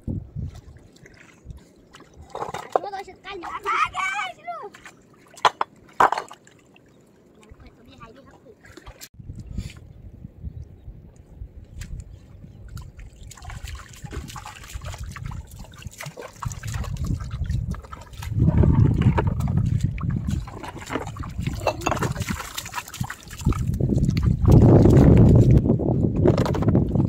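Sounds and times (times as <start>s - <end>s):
shallow water splashing around feet: 0.5s - 2.6s, 4.5s - 7.6s, 12.7s - 18.7s, 19.3s - 25.6s.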